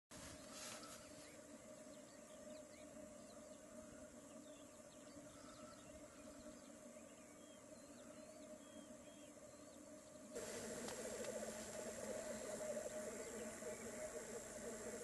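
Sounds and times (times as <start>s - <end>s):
grouse bubbling display song: 10.4s - 15.0s.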